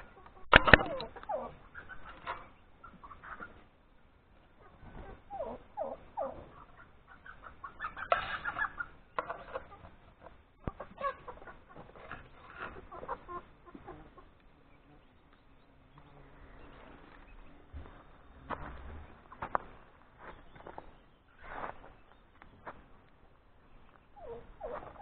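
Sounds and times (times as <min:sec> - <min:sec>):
chickens clucking: 0:00.0 - 0:25.0
sharp click: 0:00.5 - 0:01.1.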